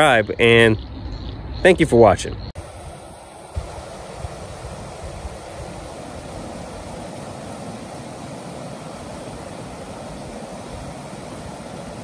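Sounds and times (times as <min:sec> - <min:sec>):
stream running over rocks: 0:02.6 - 0:12.0.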